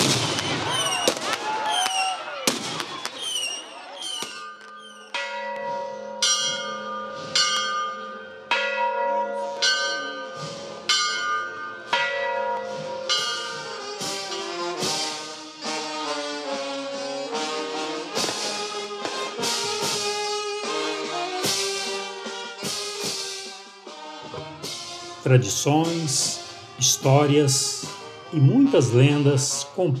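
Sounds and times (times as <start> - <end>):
brass band playing: 0.0 - 1.6, 12.7 - 30.0
church bell ringing: 4.4 - 14.9.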